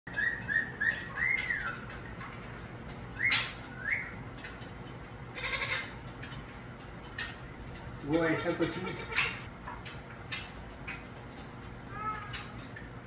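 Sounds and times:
parakeet squawking: 0.1s - 1.8s, 5.4s - 6.0s.

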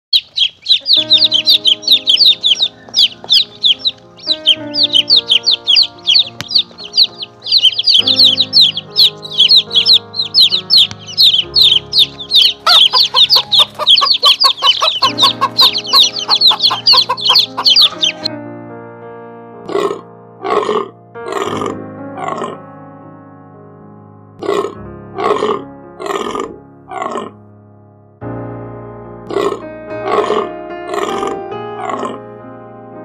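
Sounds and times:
chicks peeping: 0.1s - 18.3s, 29.3s - 32.2s
background music with held notes: 0.7s - 33.0s.

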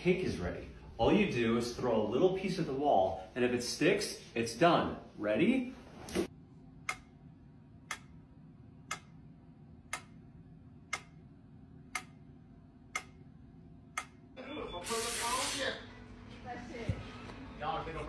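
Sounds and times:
metronome ticking: 7.9s - 8.2s, 8.8s - 9.2s, 9.9s - 10.3s, 10.9s - 11.3s, 11.9s - 12.3s, 12.9s - 13.3s.

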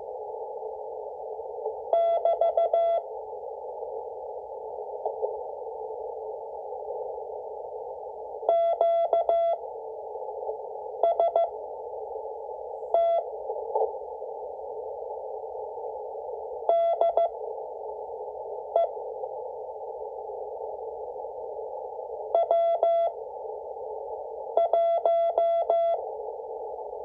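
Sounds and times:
radio band noise hiss: 0.0s - 27.0s
morse code beeps: 2.0s - 3.0s, 8.5s - 9.6s, 11.0s - 11.5s, 13.0s - 13.3s, 16.7s - 17.3s, 22.4s - 23.1s, 24.6s - 26.0s.

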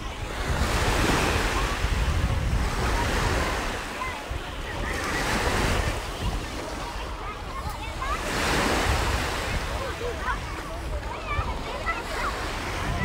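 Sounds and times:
sea surf washing onto beach: 0.0s - 13.0s
wind buffeting microphone: 0.0s - 13.0s.

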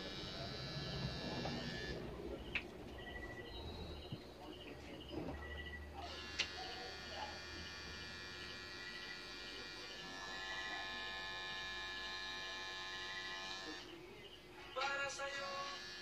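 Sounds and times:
tattoo machine buzzing: 0.0s - 2.0s, 6.0s - 13.9s, 15.4s - 16.0s.

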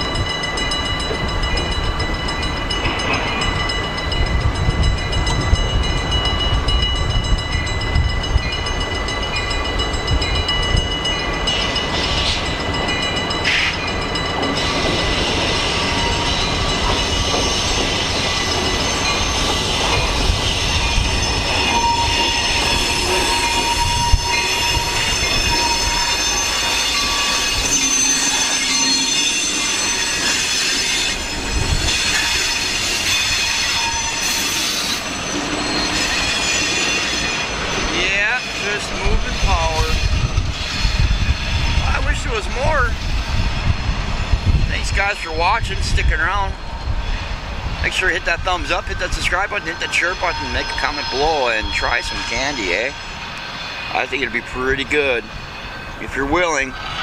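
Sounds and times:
diesel locomotive engine rumble: 0.0s - 57.0s
wheel-on-rail squeal: 11.0s - 43.4s, 45.2s - 57.0s.

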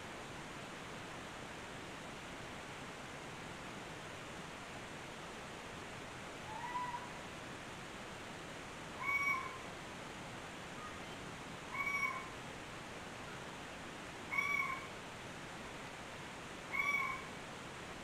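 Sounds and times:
steady hiss: 0.0s - 18.0s
meow-like animal call: 6.5s - 7.1s, 9.0s - 9.6s, 11.7s - 12.3s, 14.3s - 14.9s, 16.7s - 17.3s.

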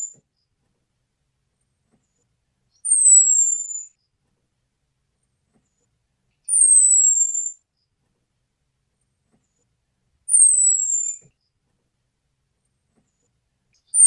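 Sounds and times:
thrush high whistling call: 10.3s - 11.2s.

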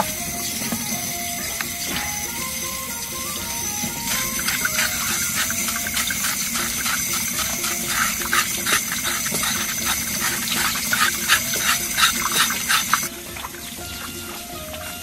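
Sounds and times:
running tap water splashing: 0.0s - 15.0s
knife scraping skin: 4.1s - 13.1s.

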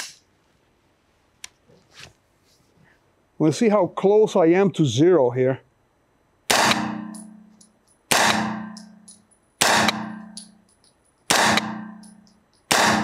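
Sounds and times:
gunshots echoing indoors: 6.5s - 7.4s, 8.1s - 10.5s, 11.3s - 13.0s
faint light clinks: 7.1s - 8.1s, 8.7s - 9.6s, 10.2s - 11.3s, 12.0s - 12.7s.

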